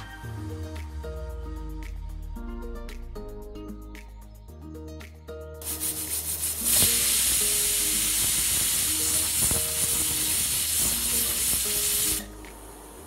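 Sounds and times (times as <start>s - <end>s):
pressure cooker whistling: 6.6s - 12.3s.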